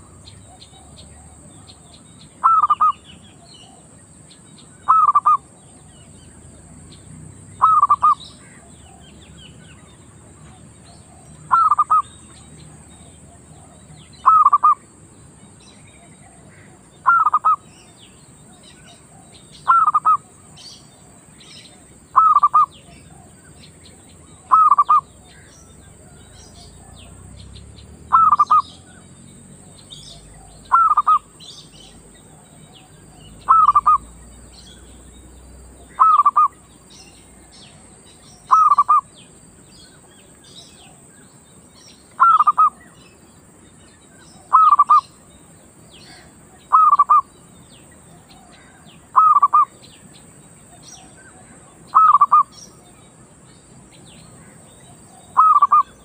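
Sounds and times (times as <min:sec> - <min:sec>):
dove cooing: 0:00.0 - 0:03.9, 0:04.8 - 0:05.5, 0:07.5 - 0:09.2, 0:10.5 - 0:14.8, 0:16.0 - 0:17.7, 0:18.7 - 0:21.0, 0:21.7 - 0:27.4, 0:28.0 - 0:29.0, 0:29.6 - 0:34.3, 0:35.8 - 0:36.6, 0:37.7 - 0:39.1, 0:42.1 - 0:42.9, 0:44.4 - 0:45.2, 0:46.0 - 0:47.3, 0:48.1 - 0:49.8, 0:50.7 - 0:52.9, 0:54.9 - 0:56.0
small birds chirping: 0:00.0 - 0:56.0.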